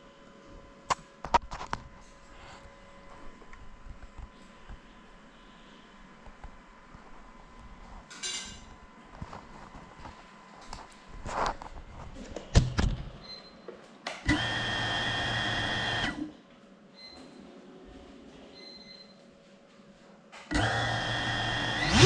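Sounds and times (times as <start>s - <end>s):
drone motors whining: 14.3s - 16.2s, 20.5s - 22.0s.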